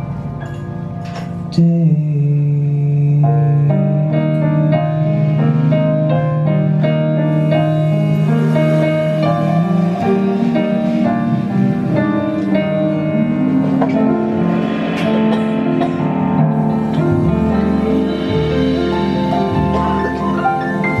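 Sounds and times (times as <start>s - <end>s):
double bass: 0.0s - 21.0s
piano: 0.0s - 21.0s
jazz guitar: 4.0s - 21.0s
trumpet: 7.2s - 21.0s.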